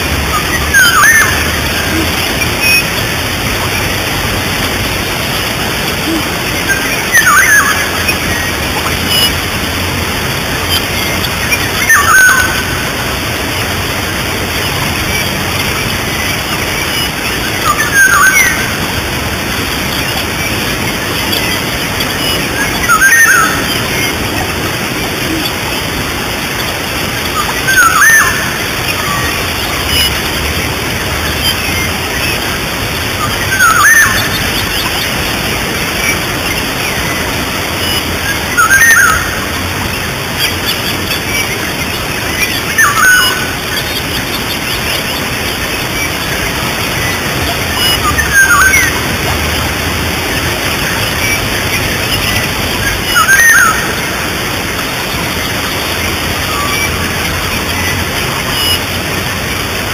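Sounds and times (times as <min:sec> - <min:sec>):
waterfall and stream rushing: 0:00.0 - 0:59.9
bird sweeping call: 0:00.3 - 0:03.0, 0:19.7 - 0:25.9, 0:27.3 - 0:30.2, 0:42.3 - 0:59.0.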